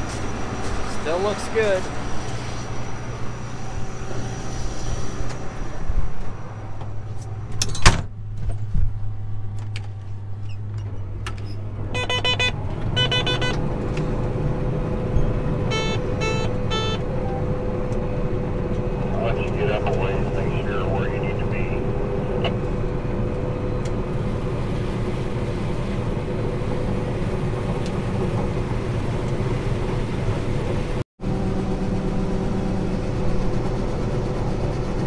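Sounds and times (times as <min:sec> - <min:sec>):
harvester engine drone: 0:00.0 - 0:35.0
rapid electronic beeps: 0:12.0 - 0:13.6.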